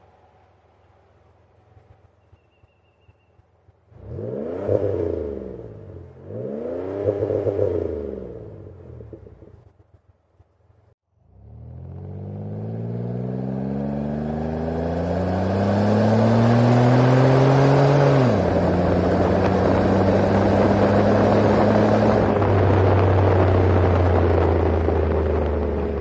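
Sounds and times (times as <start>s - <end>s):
car engine accelerating: 3.7s - 9.8s, 11.2s - 26.0s.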